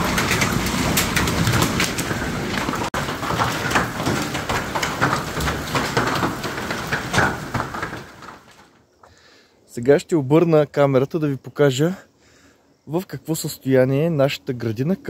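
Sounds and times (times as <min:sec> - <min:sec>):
heavy rain downpour: 0:00.0 - 0:08.0
hailstones clattering on metal door: 0:00.0 - 0:08.9.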